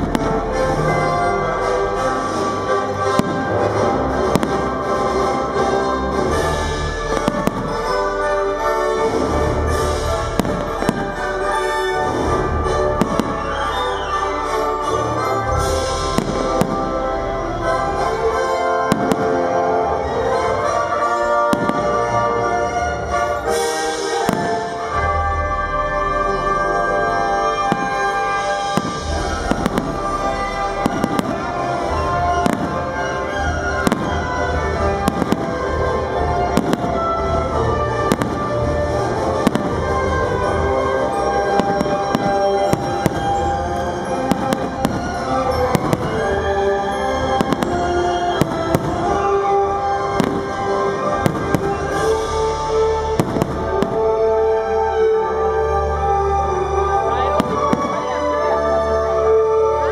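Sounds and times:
firework shells bursting: 39.4s - 54.2s.

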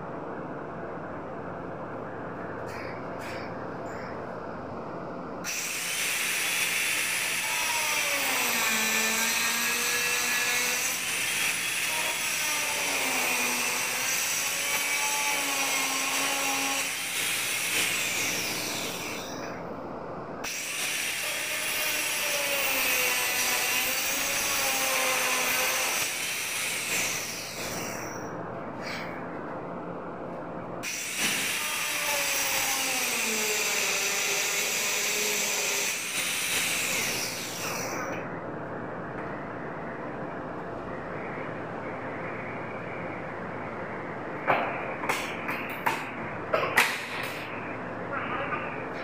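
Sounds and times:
power saw cutting wood: 5.5s - 19.4s, 20.4s - 28.2s, 30.8s - 38.2s.

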